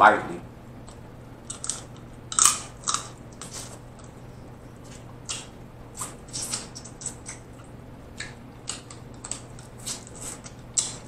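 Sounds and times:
wet chewing and lip smacks: 0:04.9 - 0:11.0.

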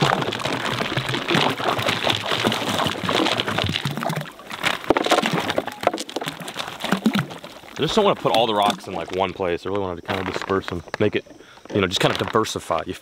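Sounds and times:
stones plopping into water: 0:00.0 - 0:09.3
stones splashing into water: 0:00.0 - 0:09.3.

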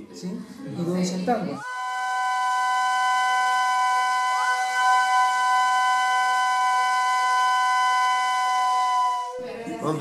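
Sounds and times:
long horn-like musical note: 0:01.6 - 0:09.5.

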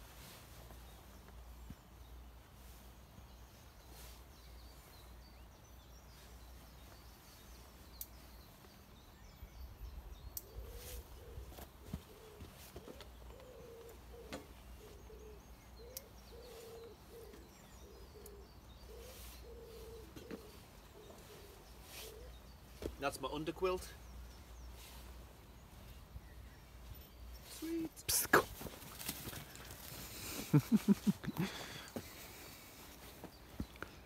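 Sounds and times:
faint small-bird chirps: 0:03.6 - 0:11.5, 0:13.0 - 0:29.9
pigeon cooing: 0:10.6 - 0:22.4.

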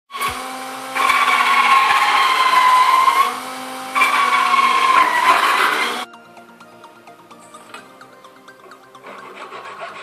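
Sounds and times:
drill saw blade cutting plastic: 0:00.1 - 0:06.1.

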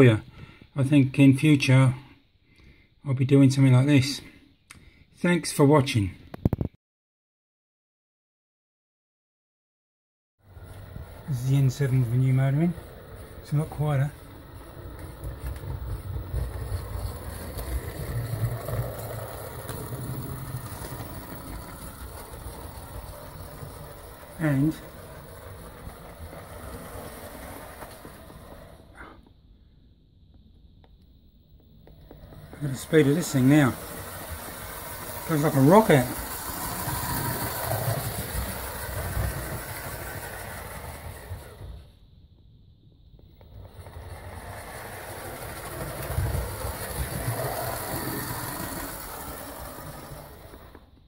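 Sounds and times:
wheel noise on rails: 0:10.4 - 0:29.2, 0:31.6 - 0:42.1, 0:43.2 - 0:51.0
model locomotive running: 0:10.5 - 0:29.1, 0:31.8 - 0:42.0, 0:43.4 - 0:51.0.

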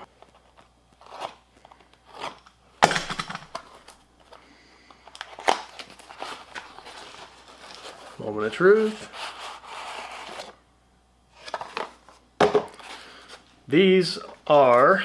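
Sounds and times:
packaging crinkling and tearing: 0:05.0 - 0:08.2.

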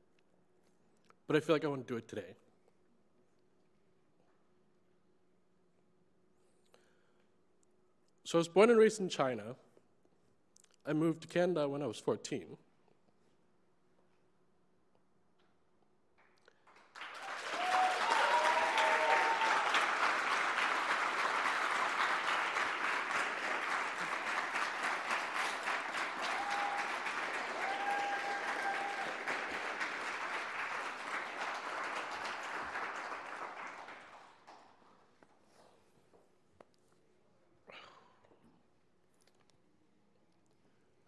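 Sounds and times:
large audience applauding: 0:16.6 - 0:34.9.

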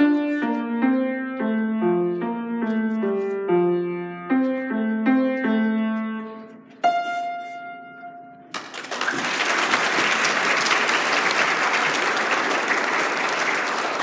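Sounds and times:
piano note ringing: 0:00.0 - 0:08.5
audience applause: 0:08.5 - 0:14.0.

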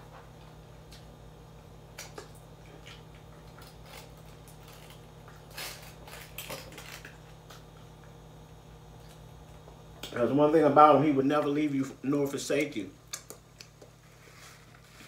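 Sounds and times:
chicken wing torn and chewed: 0:02.0 - 0:07.6.

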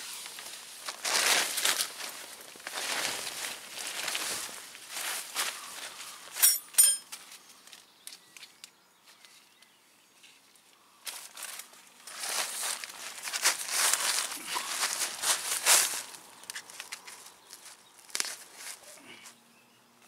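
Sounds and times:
plastic tarp crinkling: 0:00.0 - 0:06.0, 0:11.1 - 0:17.0
sharp ringing clinks: 0:06.4 - 0:07.2.

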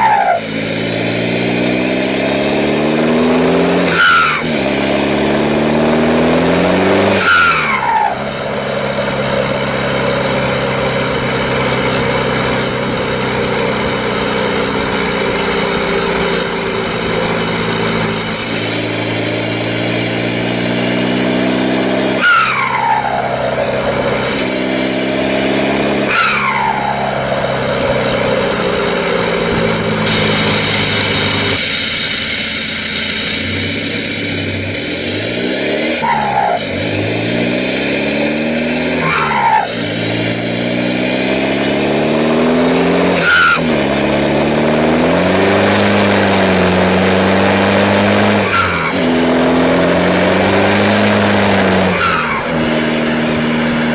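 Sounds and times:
turbo whistle: 0:00.0 - 0:03.0, 0:03.6 - 0:05.0, 0:06.1 - 0:13.8, 0:14.4 - 0:38.0, 0:43.2 - 0:43.8
car exhaust under acceleration: 0:00.0 - 0:53.9.

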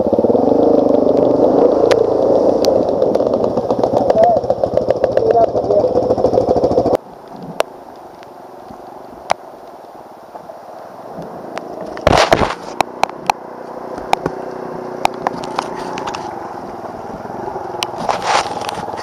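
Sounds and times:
quad engine running: 0:00.0 - 0:07.0, 0:12.0 - 0:19.0
riding through mud and water: 0:00.0 - 0:19.0
rain tapping on helmet camera: 0:00.1 - 0:19.0.

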